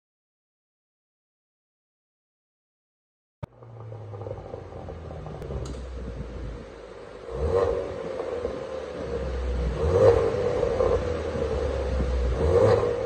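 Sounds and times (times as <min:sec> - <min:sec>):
car engine idling: 0:03.4 - 0:13.0
click: 0:05.6 - 0:05.8
engine rev blip: 0:07.2 - 0:13.0.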